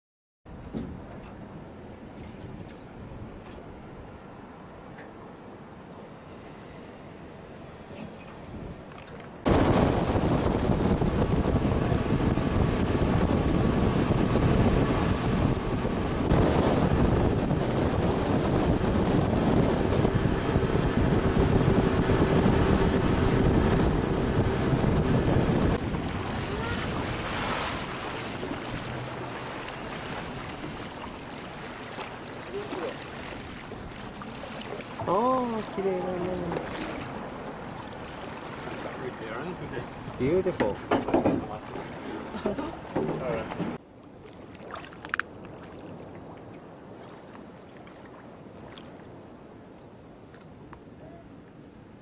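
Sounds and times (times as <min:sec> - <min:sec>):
wind buffeting microphone: 0:08.4 - 0:43.8
sea water rushing: 0:08.9 - 0:50.3.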